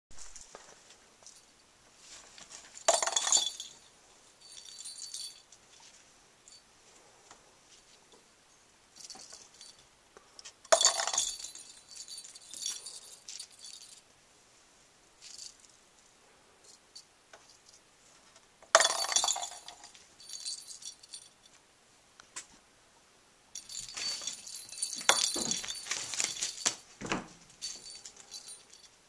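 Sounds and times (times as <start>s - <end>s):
bell in toy ball jingling: 2.8s - 5.5s, 9.0s - 9.8s, 10.7s - 14.0s, 18.7s - 21.5s, 23.6s - 26.8s, 27.6s - 29.0s.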